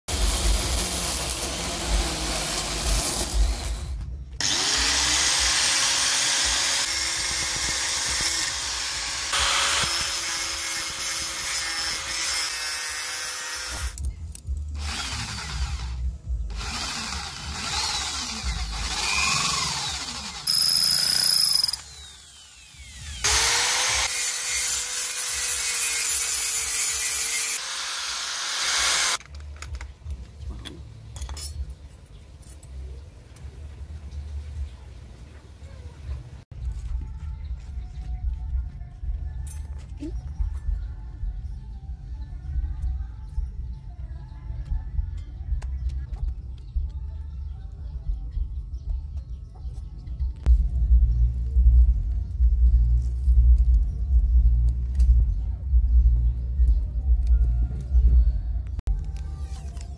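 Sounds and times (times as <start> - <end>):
small electric motor whine: 14.8 - 29.2
steel being scraped: 23.4 - 29.2.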